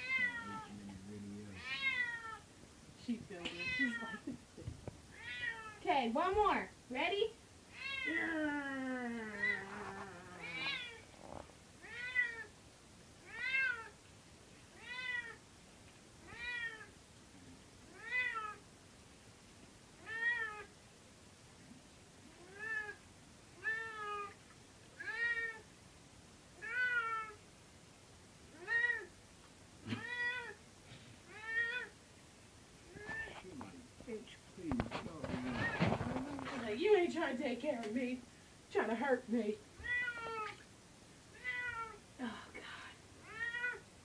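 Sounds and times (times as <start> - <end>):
cat meowing: 0.0 - 0.8, 1.5 - 2.5, 3.5 - 4.3, 5.1 - 5.8, 7.7 - 8.3, 9.3 - 11.1, 11.8 - 12.5, 13.2 - 14.0, 14.7 - 15.4, 16.2 - 16.9, 17.9 - 18.6, 20.0 - 20.7, 22.3 - 23.0, 23.6 - 24.4, 25.0 - 25.6, 26.6 - 27.4, 28.5 - 29.1, 29.8 - 30.6, 31.3 - 32.0, 32.9 - 33.4, 39.8 - 40.6, 41.3 - 42.0, 43.2 - 43.9.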